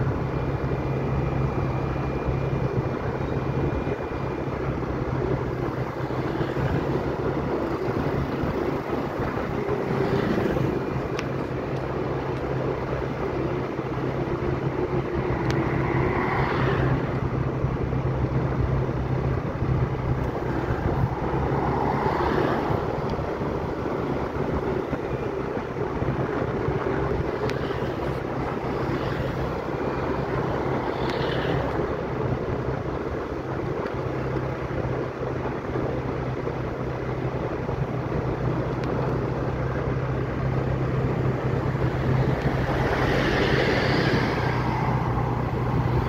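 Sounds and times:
engine humming: 0:00.0 - 0:46.0
wind rushing: 0:13.0 - 0:27.4.

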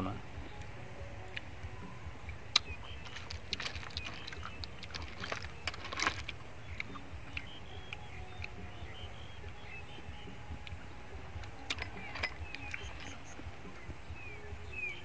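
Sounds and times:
snail shells clicking: 0:02.2 - 0:08.7, 0:11.4 - 0:13.3.

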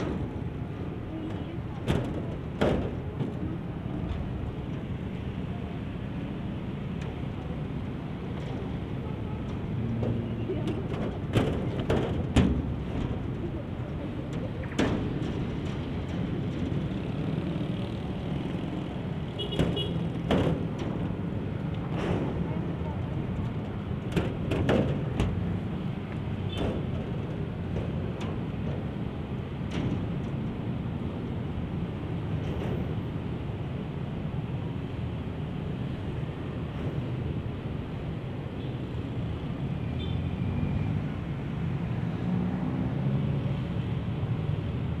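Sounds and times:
diesel locomotive engine rumble: 0:00.0 - 0:45.0
sharp clicks and knocks: 0:09.4 - 0:17.3, 0:19.4 - 0:31.2.

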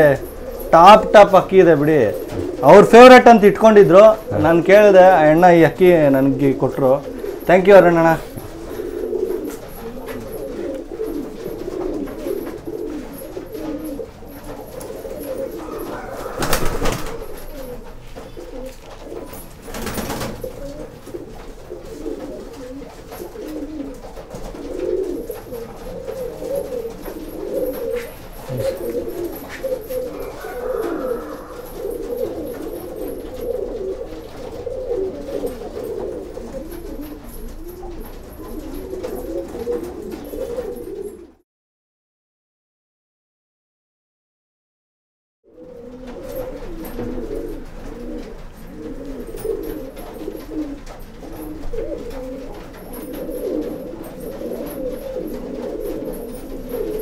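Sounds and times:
pigeons cooing: 0:00.0 - 0:41.4, 0:45.5 - 0:57.0.

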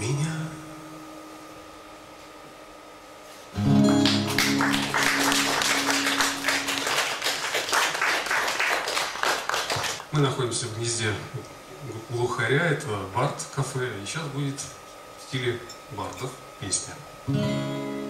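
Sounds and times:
acoustic guitar chord: 0:03.6 - 0:07.4, 0:17.3 - 0:18.0
audience applause: 0:03.7 - 0:10.1.

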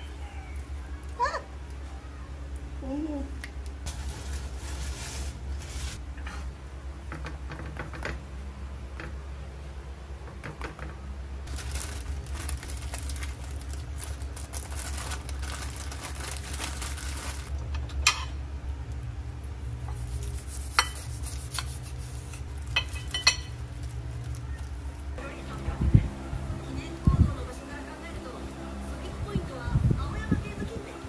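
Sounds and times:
steady low hum: 0:00.0 - 0:31.0
paper wrapping crinkling: 0:03.9 - 0:06.0, 0:11.5 - 0:17.5, 0:21.3 - 0:25.2.

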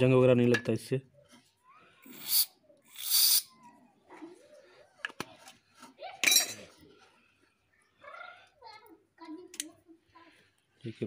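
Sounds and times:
aerosol spray hissing: 0:02.1 - 0:03.5.

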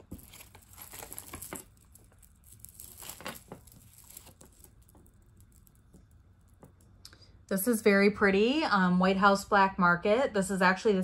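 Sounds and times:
jewelry clicking and rustling: 0:00.0 - 0:07.0.

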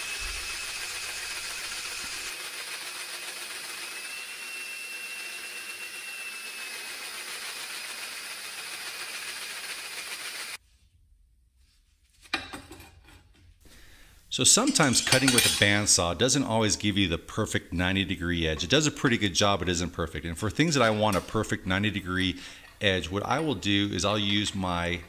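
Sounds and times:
hole saw cutting steel: 0:00.0 - 0:10.6.

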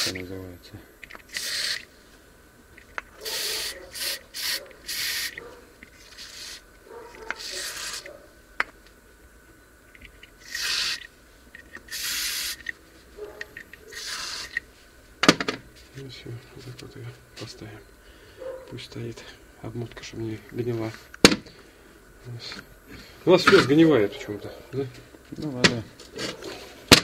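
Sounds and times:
aerosol can spraying bursts: 0:01.3 - 0:01.9, 0:03.2 - 0:05.4, 0:06.0 - 0:06.6, 0:07.4 - 0:08.1, 0:10.4 - 0:11.1, 0:11.8 - 0:12.7, 0:13.9 - 0:14.6.

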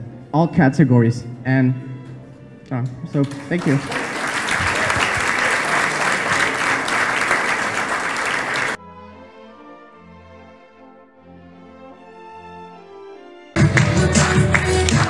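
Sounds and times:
background music with held notes: 0:00.0 - 0:15.0
audience applauding: 0:03.2 - 0:08.8, 0:13.6 - 0:15.0.

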